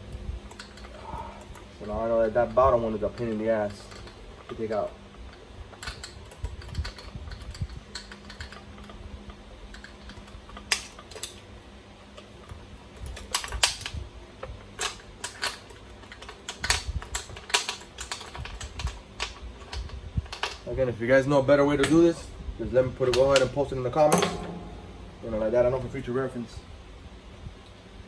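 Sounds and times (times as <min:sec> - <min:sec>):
faint low hum: 0:20.5 - 0:28.0.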